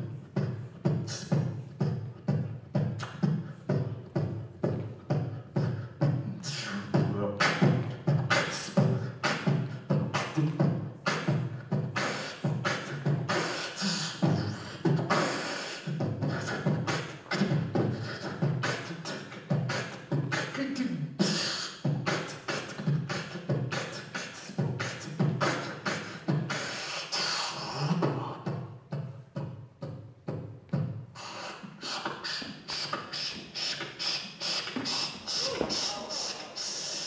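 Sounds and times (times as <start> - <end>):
person beatboxing: 0.0 - 37.0.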